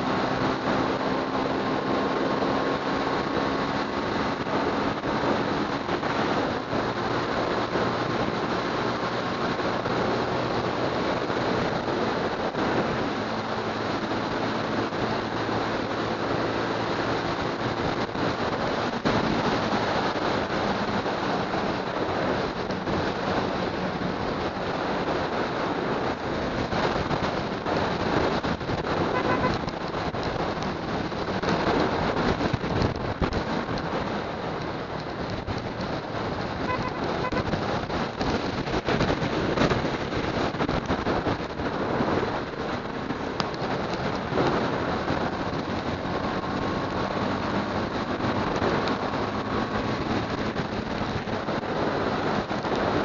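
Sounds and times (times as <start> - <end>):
wind rushing over microphone: 0.0 - 53.0
motorcycle engine running: 27.1 - 53.0.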